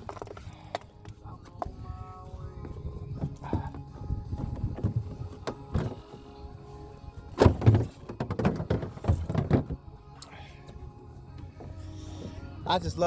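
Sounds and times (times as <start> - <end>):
background music: 0.0 - 13.0
dull thumps: 3.1 - 6.3, 7.2 - 9.9.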